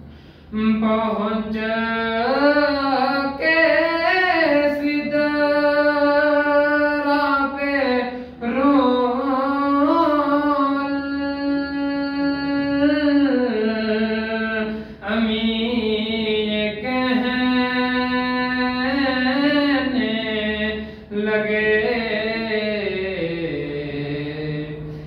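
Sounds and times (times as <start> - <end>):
man breathing: 0.0 - 0.6, 8.1 - 8.4, 14.7 - 15.0, 20.8 - 21.1, 24.8 - 25.0
man singing unaccompanied: 0.5 - 25.0.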